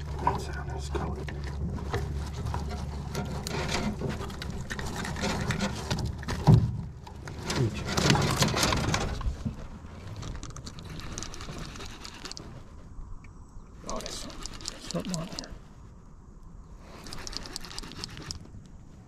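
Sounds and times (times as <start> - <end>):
landing net rustling: 1.6 - 12.6.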